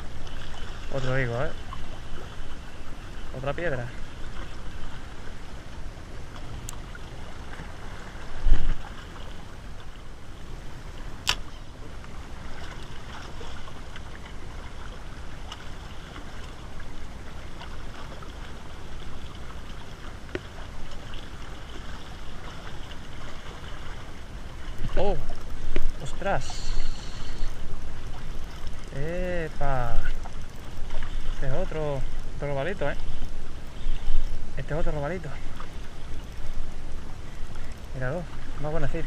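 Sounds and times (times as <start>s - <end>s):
sharp click: 11.2s - 11.5s.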